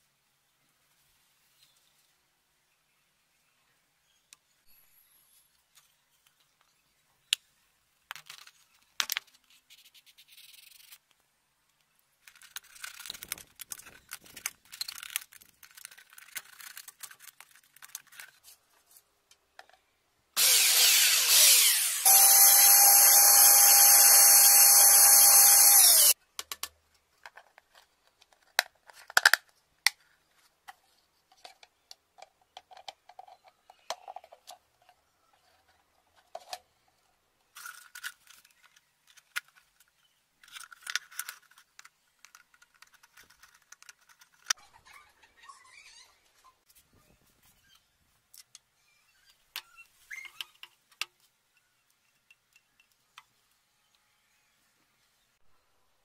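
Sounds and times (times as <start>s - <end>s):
power drill whining: 20.4s - 26.2s.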